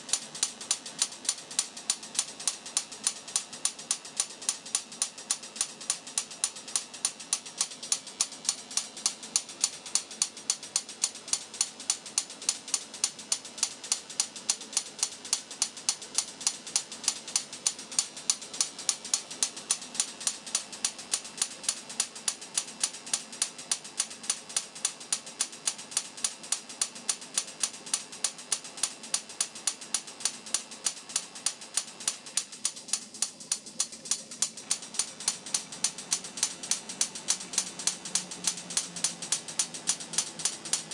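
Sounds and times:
high-voltage discharge snaps: 0:25.6 - 0:40.9.

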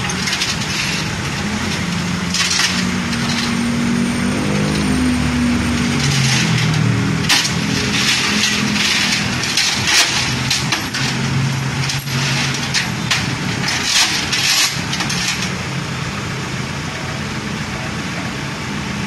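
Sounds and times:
chains rattling on metal deck: 0:00.0 - 0:03.8, 0:04.4 - 0:15.6
truck engine idling: 0:00.0 - 0:19.0.

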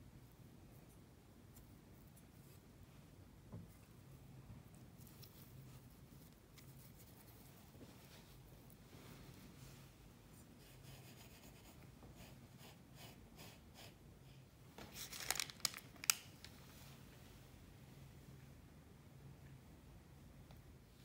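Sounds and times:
sugar rustling: 0:03.7 - 0:10.6, 0:14.8 - 0:17.0.

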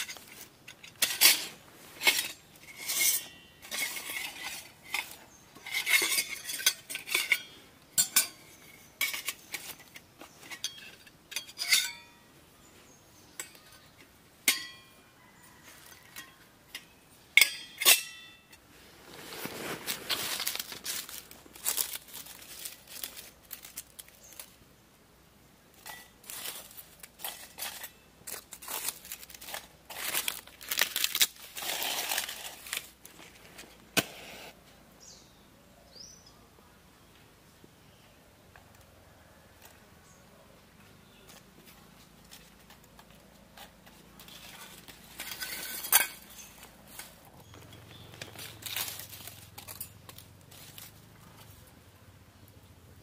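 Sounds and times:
twigs and leaves rustling: 0:00.0 - 0:24.7, 0:25.7 - 0:34.6, 0:40.8 - 0:51.9
metal cookware clinking: 0:00.8 - 0:09.6, 0:10.5 - 0:12.2, 0:14.4 - 0:15.0, 0:16.2 - 0:18.5, 0:45.1 - 0:46.6.

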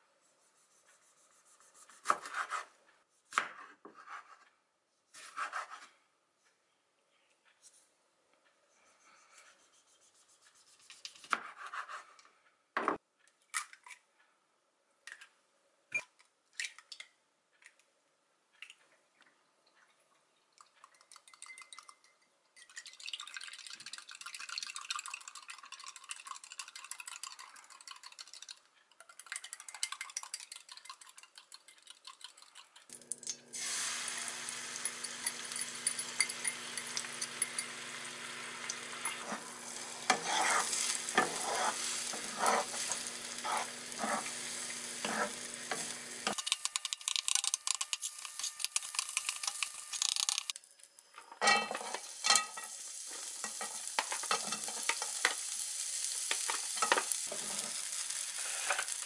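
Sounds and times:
fork whisking eggs in glass: 0:20.6 - 0:32.9, 0:34.7 - 0:38.0, 0:38.6 - 0:44.3, 0:45.0 - 0:50.6
egg sizzling in frying pan: 0:31.9 - 0:50.6, 0:51.5 - 0:59.0.

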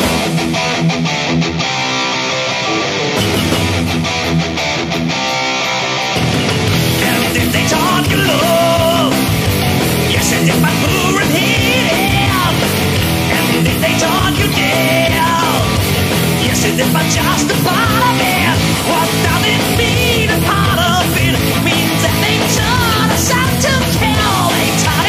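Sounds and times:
metal song with electric guitars: 0:00.0 - 0:25.0
person singing: 0:07.0 - 0:09.4, 0:10.1 - 0:25.0.

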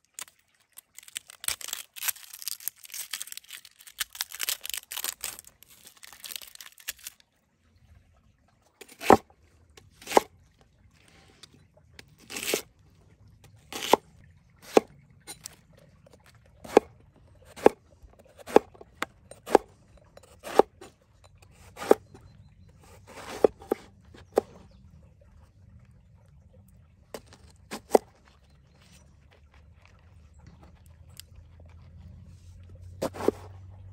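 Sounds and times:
onion skin crackly tearing: 0:00.0 - 0:07.2
knife chopping on wooden board: 0:13.7 - 0:14.0, 0:16.6 - 0:16.8, 0:19.4 - 0:19.6, 0:20.2 - 0:20.7, 0:21.7 - 0:22.0.

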